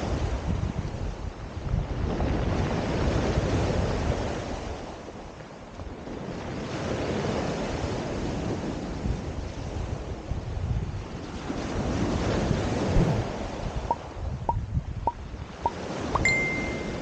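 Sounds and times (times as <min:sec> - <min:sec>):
wind buffeting microphone: 0:00.1 - 0:04.8, 0:08.9 - 0:16.2.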